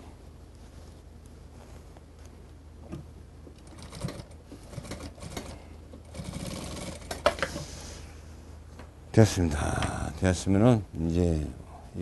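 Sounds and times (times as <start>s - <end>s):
sewing machine stitching: 3.6s - 7.4s.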